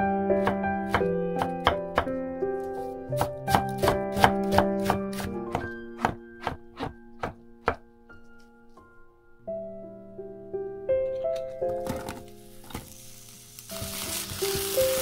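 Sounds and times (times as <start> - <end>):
background music: 0.0 - 15.0
knife chopping on wooden board: 0.4 - 2.1, 3.2 - 7.8.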